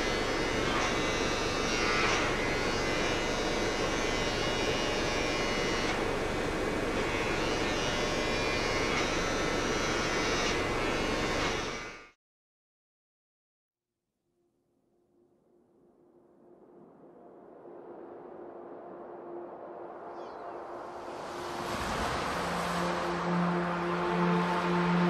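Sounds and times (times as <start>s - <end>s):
droning instrumental music: 20.4s - 25.0s.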